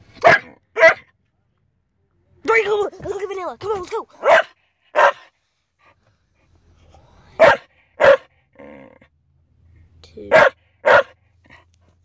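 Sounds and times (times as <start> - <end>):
dog barking: 0.2 - 1.1, 4.2 - 5.3, 7.4 - 8.3, 10.3 - 11.2.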